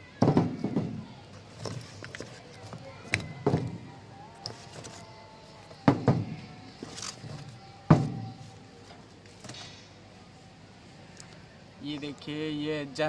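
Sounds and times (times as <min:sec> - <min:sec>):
box and paper rustling: 0:01.4 - 0:03.7, 0:04.4 - 0:05.8, 0:06.8 - 0:07.6.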